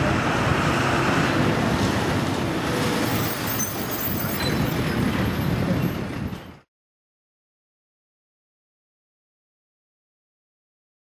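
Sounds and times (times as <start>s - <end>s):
city road traffic: 0.0s - 6.7s.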